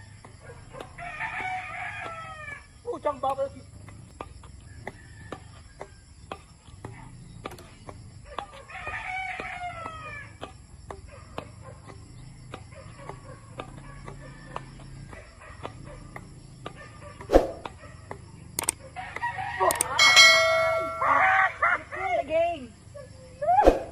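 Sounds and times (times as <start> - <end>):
rooster crowing: 1.0 - 2.7, 4.7 - 6.0, 8.6 - 10.4, 19.0 - 21.8.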